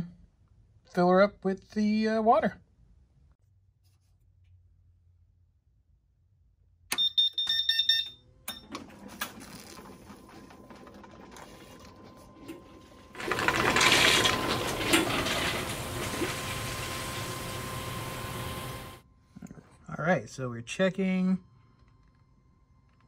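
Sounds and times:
pump humming: 11.1 - 19.0
rushing mechanical noise: 13.1 - 19.0.

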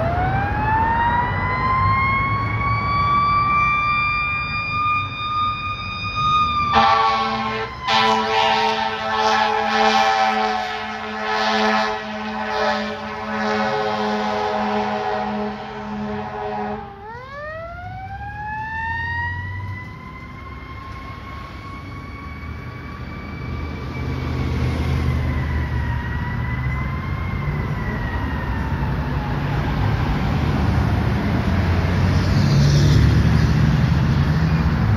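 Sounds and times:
siren winding up and down: 0.0 - 30.3
road traffic rumble: 0.0 - 34.9
fire engine air horn blasts: 6.6 - 17.2.

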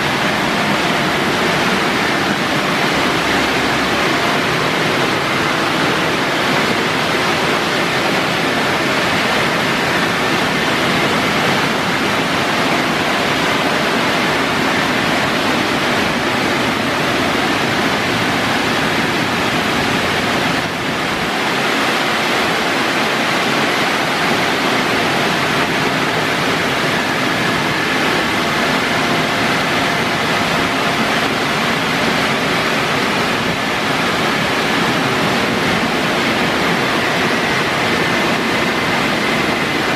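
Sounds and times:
car wash dryer blowers rushing: 0.0 - 39.9.

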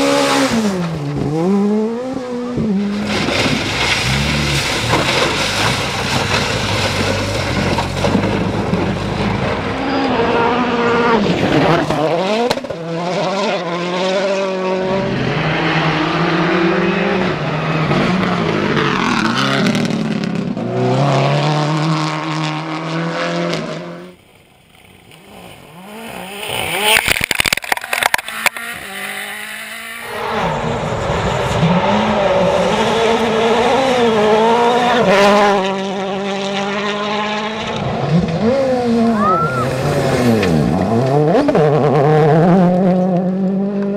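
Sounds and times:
rally car engines revving: 0.0 - 24.2, 24.8 - 43.9
tyres scrabbling on gravel: 3.0 - 9.3.

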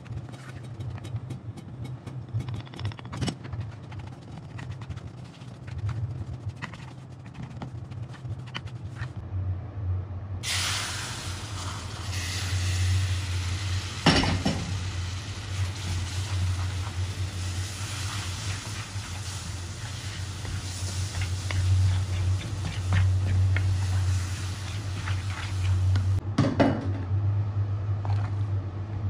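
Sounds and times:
steady low hum: 0.0 - 29.0
liquid sizzling and bubbling: 10.4 - 26.2
wooden spoon scraping metal pan: 17.8 - 26.0.

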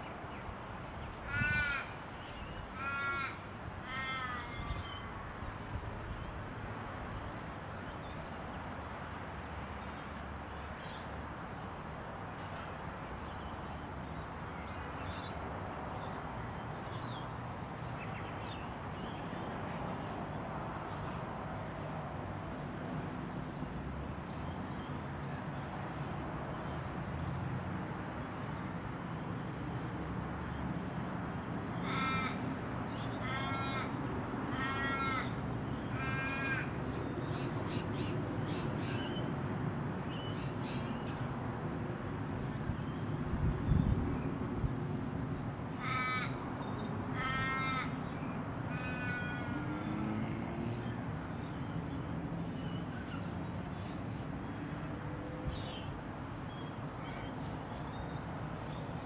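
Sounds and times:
loud bird calls: 1.0 - 5.1, 31.7 - 39.2, 45.8 - 54.2.

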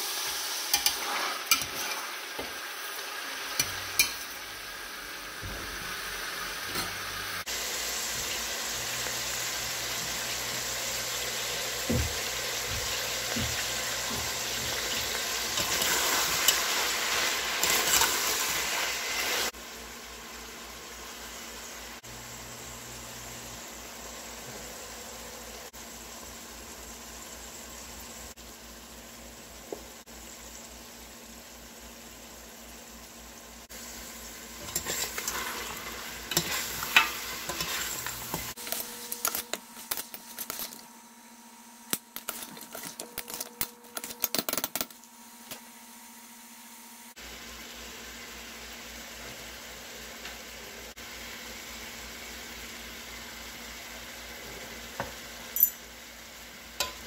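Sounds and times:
meat sizzling in a pot: 0.0 - 57.0
metal spoon scraping a pot: 0.7 - 2.1, 34.6 - 40.7.

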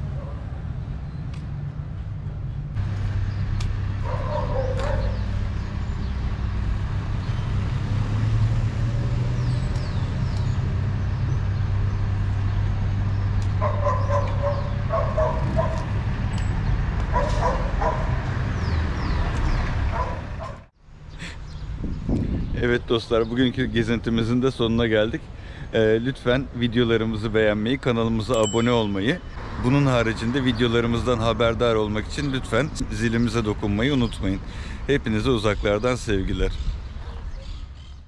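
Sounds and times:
street traffic rumble: 0.0 - 38.0
dog barking and yelping: 4.1 - 5.2, 13.6 - 15.9, 17.1 - 18.2.

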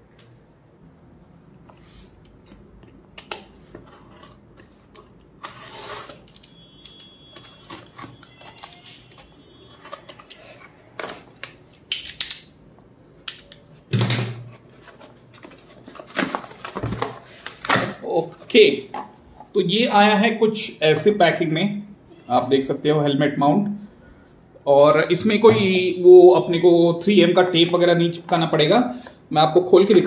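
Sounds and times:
packaging rustling and tearing: 7.3 - 11.6, 14.6 - 18.4.

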